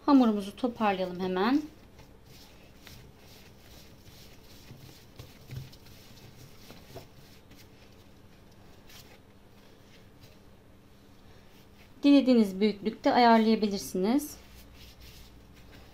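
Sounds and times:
hands patting dough: 0.4s - 10.4s.

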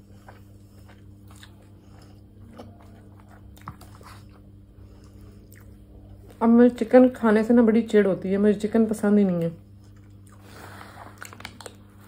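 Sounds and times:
person chewing food: 0.0s - 6.4s, 9.7s - 12.0s
steady low hum: 0.0s - 12.0s.

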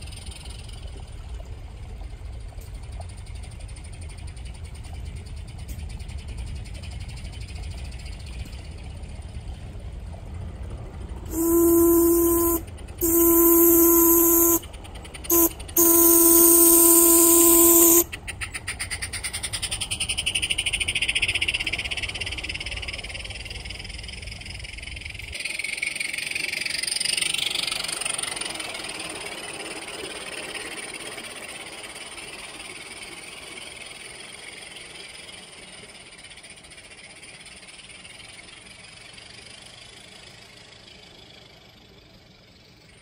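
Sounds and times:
locomotive exhaust beats: 0.0s - 25.3s
steam hissing: 11.3s - 14.7s, 15.3s - 18.1s
steam whistle blasts: 11.3s - 18.2s.

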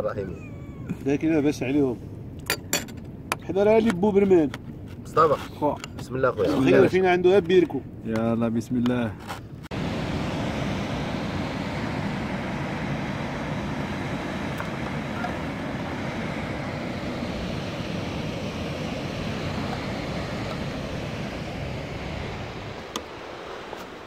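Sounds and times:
wind rumbling on microphone: 9.6s - 24.0s.

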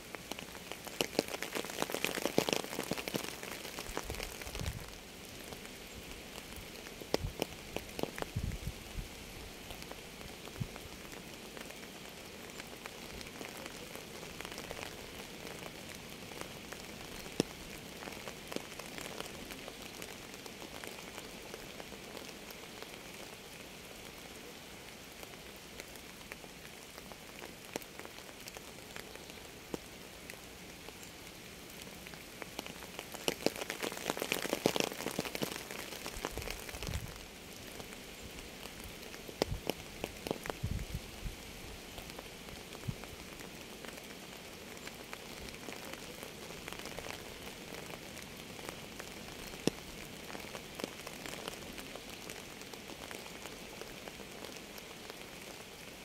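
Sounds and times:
rain falling: 0.0s - 56.0s
single raindrops: 0.1s - 23.3s, 25.2s - 44.0s.

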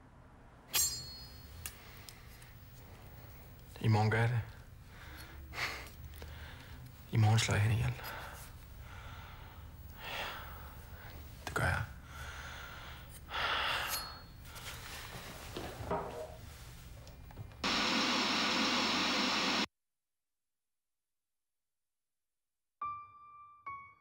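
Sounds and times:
loud steady hiss: 17.6s - 19.7s.

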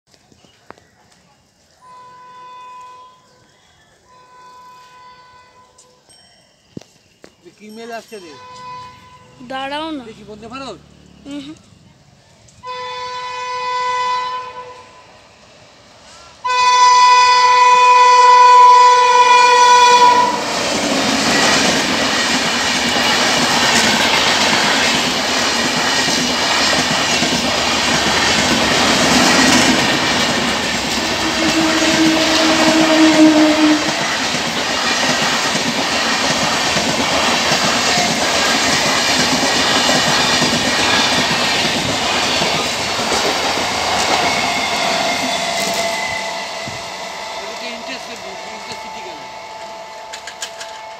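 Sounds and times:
train horn blasts: 1.8s - 3.5s, 4.1s - 6.0s, 8.3s - 9.6s, 12.6s - 15.2s, 16.4s - 20.7s, 23.7s - 24.5s, 30.9s - 34.1s, 45.1s - 50.9s
train coaches rumbling past: 7.4s - 50.9s.

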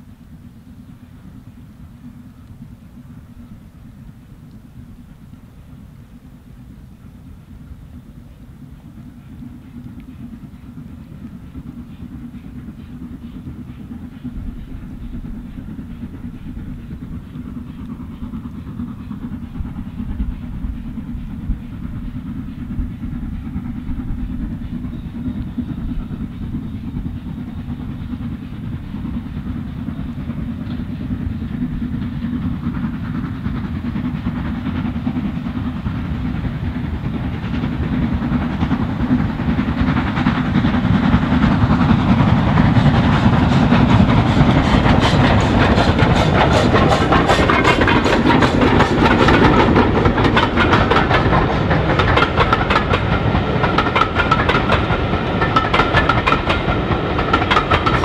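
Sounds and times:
steam locomotive approaching: 0.0s - 58.0s
wheels clattering on rail joints: 37.5s - 58.0s.

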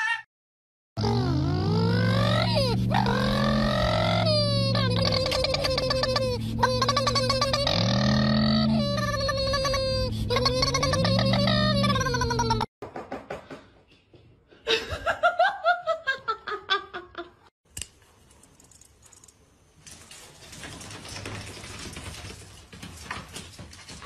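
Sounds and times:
person laughing: 2.5s - 12.7s, 14.7s - 17.5s
person giggling: 4.3s - 7.9s, 8.7s - 12.7s, 14.7s - 17.5s.

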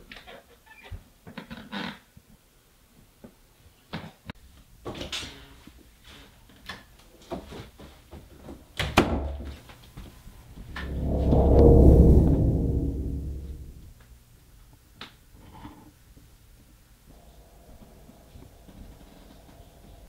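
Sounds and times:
low rumbling drone: 10.7s - 13.9s.

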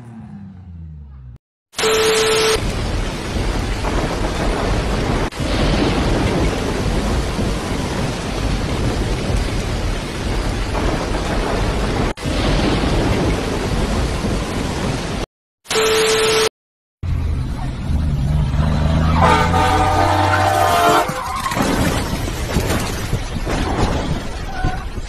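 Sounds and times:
heavy rain pouring: 1.8s - 15.3s.

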